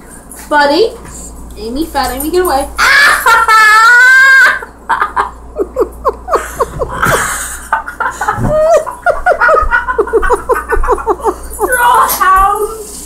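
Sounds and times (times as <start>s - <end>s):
person giggling: 2.8s - 12.0s.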